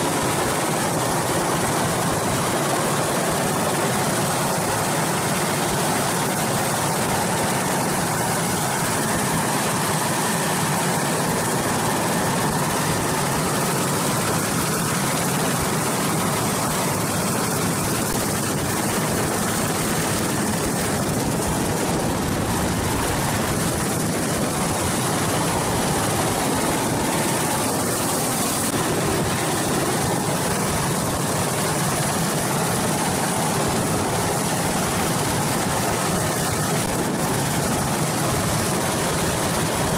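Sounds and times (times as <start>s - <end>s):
helicopter turbines and rotor: 0.0s - 39.9s.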